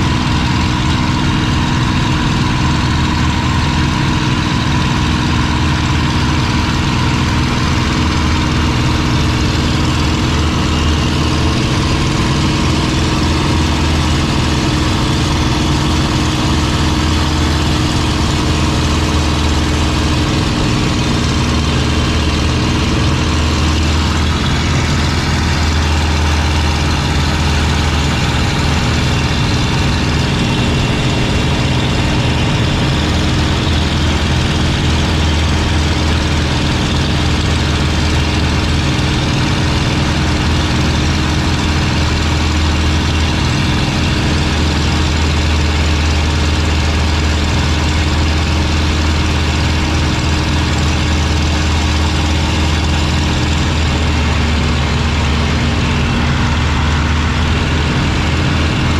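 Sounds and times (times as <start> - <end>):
aircraft engine running: 0.0 - 58.9
rush of airflow: 50.2 - 58.9.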